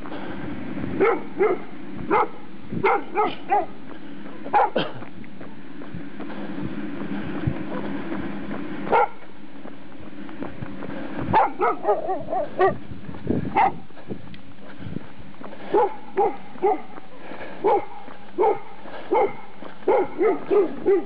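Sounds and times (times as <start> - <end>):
dog barking: 1.0 - 5.0, 8.9 - 9.2, 11.3 - 12.8, 13.6 - 13.8, 15.7 - 17.0, 17.6 - 21.0.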